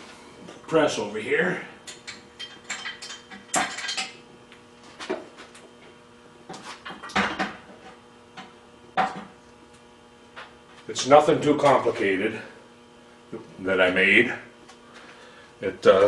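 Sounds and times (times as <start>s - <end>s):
low electrical hum: 0.0s - 16.0s
metal parts clanking: 2.1s - 4.2s.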